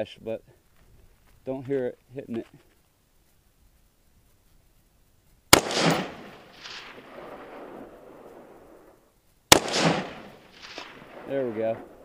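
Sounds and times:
rifle shots: 0:05.5 - 0:08.7, 0:09.5 - 0:12.0.

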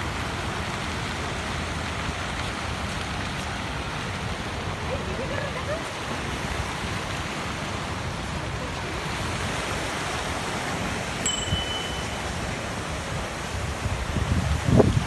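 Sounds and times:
fountain jets splashing into pool: 0:00.0 - 0:15.0
wind rumbling on microphone: 0:01.6 - 0:15.0
high steady tone: 0:11.2 - 0:12.6.

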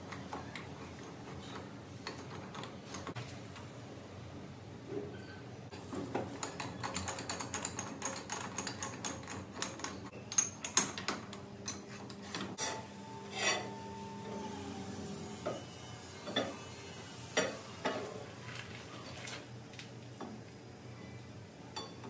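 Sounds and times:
machine hum with high tone: 0:11.3 - 0:18.5.

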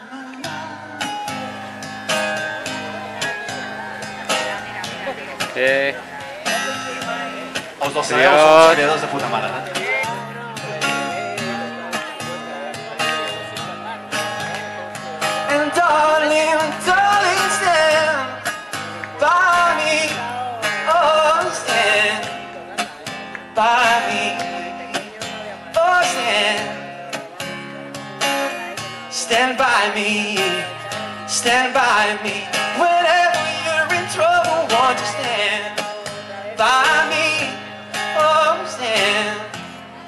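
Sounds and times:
acoustic guitar: 0:00.0 - 0:40.0
man singing: 0:00.0 - 0:40.0.

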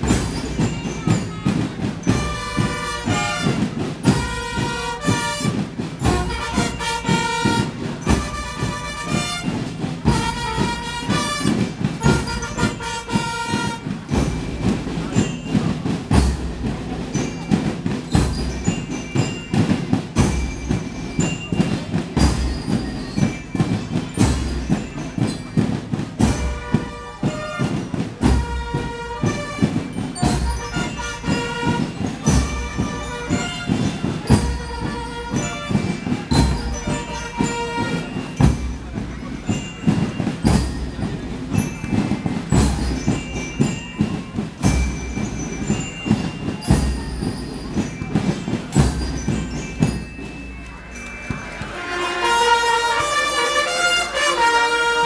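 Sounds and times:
marching drums and cymbals: 0:00.0 - 0:55.0
trumpet phrases: 0:02.2 - 0:14.2, 0:26.4 - 0:38.3, 0:51.2 - 0:55.0
brass held chords: 0:51.7 - 0:55.0.

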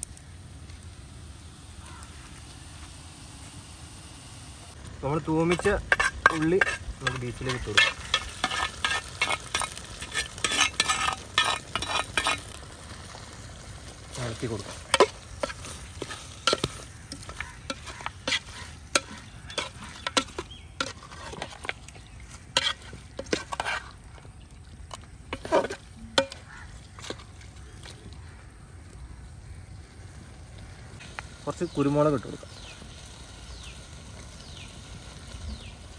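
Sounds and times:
frying sizzle: 0:00.0 - 0:28.8, 0:29.4 - 0:35.9
spatula scraping in a pan: 0:05.4 - 0:13.0, 0:14.0 - 0:24.2, 0:25.3 - 0:27.7.

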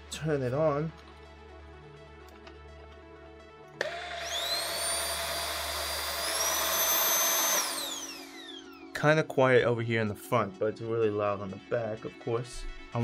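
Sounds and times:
stick vacuum motor whine: 0:03.8 - 0:09.0.

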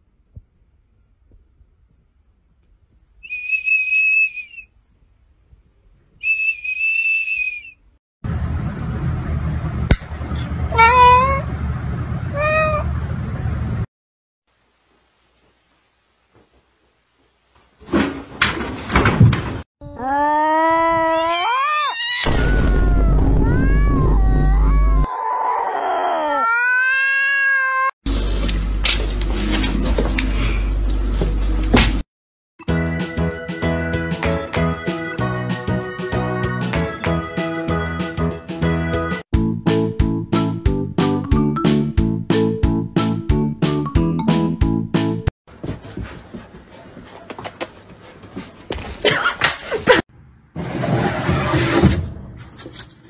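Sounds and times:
high-pitched whistle blasts: 0:03.2 - 0:04.7, 0:06.2 - 0:07.8
cat meowing: 0:10.7 - 0:11.5, 0:12.3 - 0:12.9, 0:21.1 - 0:27.9
knocks and thumps: 0:17.8 - 0:19.6.

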